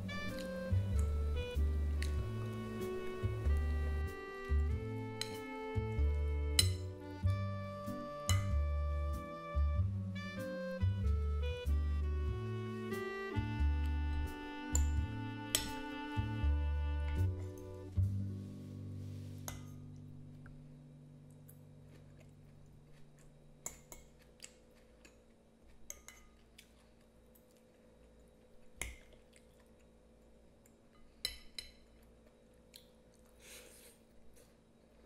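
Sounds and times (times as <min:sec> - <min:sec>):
background music: 0:00.0 - 0:22.0
quiet chewing: 0:21.3 - 0:35.0.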